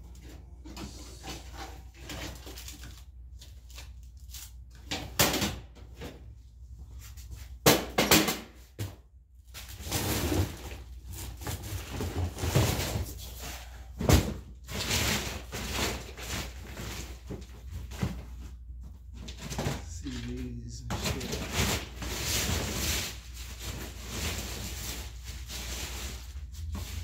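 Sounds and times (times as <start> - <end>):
rustling and scraping: 0.1 - 4.9, 9.4 - 27.0
plastic bins thumping: 11.3 - 19.9.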